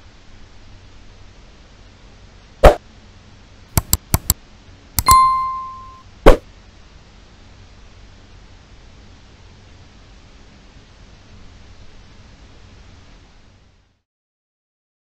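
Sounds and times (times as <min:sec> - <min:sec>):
mouse clicks: 0:03.8 - 0:04.4
bell ding: 0:05.0 - 0:06.0.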